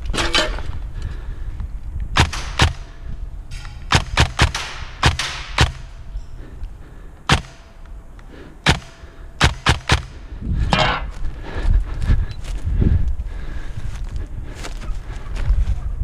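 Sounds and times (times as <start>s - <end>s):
steady low rumble: 0.0s - 16.0s
airsoft gun shots: 2.2s - 2.9s, 3.6s - 6.0s, 7.3s - 7.8s, 8.6s - 10.2s.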